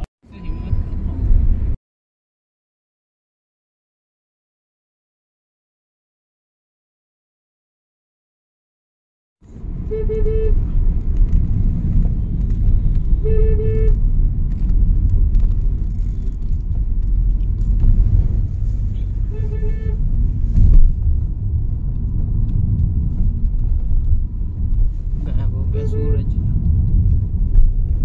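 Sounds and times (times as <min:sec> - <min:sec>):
car cabin road rumble: 0:00.0 - 0:01.8, 0:09.4 - 0:28.0
car horn toots: 0:09.7 - 0:10.8, 0:12.7 - 0:14.0, 0:18.9 - 0:20.0, 0:25.7 - 0:26.3
thump: 0:20.5 - 0:21.0.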